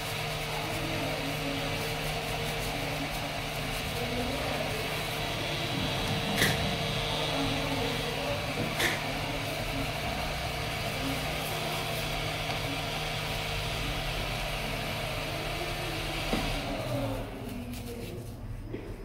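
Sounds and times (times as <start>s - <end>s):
hot air blower hissing: 0.0s - 18.2s.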